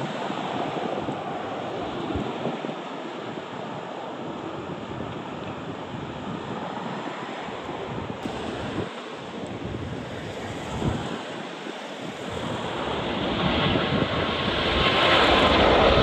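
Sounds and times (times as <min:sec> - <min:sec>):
jet engine rushing: 0:00.0 - 0:16.0
wind buffeting the microphone: 0:00.0 - 0:16.0.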